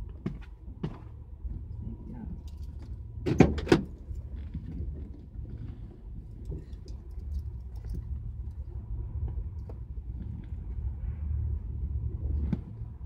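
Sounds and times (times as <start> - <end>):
light clicks and rustles: 3.6 - 8.7.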